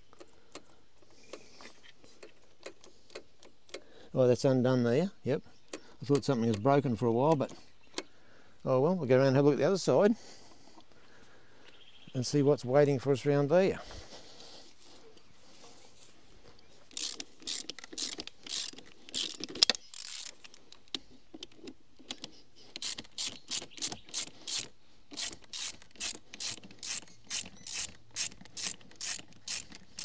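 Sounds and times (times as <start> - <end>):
ratchet wrench clicking: 16.9 - 20.5, 22.8 - 30.0.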